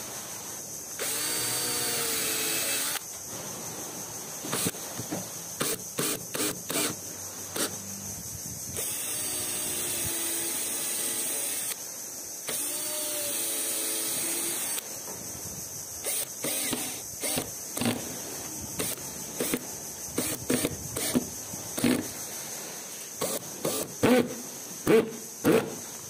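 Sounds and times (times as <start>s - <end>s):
cordless drill motor whine: 1.0s - 3.0s, 8.8s - 11.8s, 12.5s - 14.8s, 16.0s - 18.1s, 20.2s - 21.2s.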